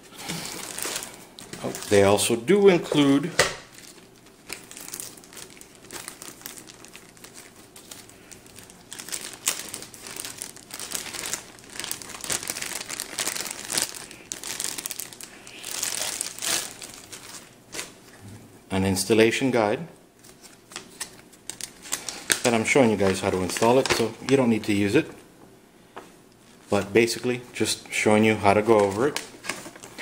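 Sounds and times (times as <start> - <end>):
plastic bag crinkling: 0.1 - 18.2, 20.2 - 25.2, 28.4 - 30.0.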